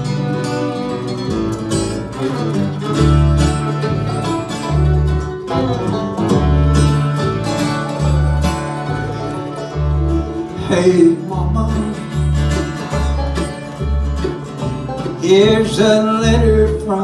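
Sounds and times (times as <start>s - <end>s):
bluegrass band playing: 0.0s - 17.0s
upright bass low notes: 0.0s - 17.0s.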